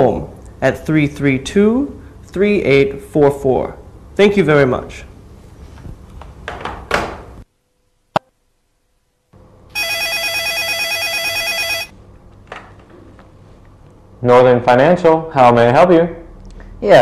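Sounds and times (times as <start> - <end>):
telephone ringing with trill: 9.8 - 11.9.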